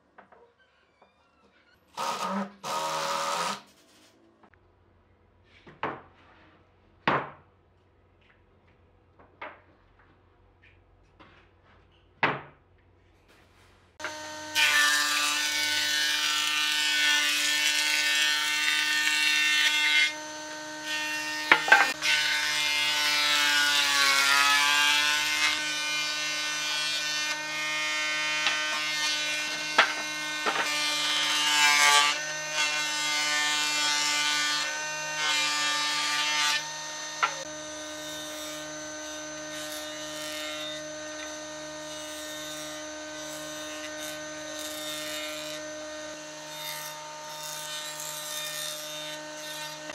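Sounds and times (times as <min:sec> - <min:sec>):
cutterhead cutting wood: 0:02.0 - 0:03.7, 0:14.0 - 0:49.9
jointer motor whining: 0:14.0 - 0:16.7, 0:17.7 - 0:23.0, 0:25.1 - 0:48.2.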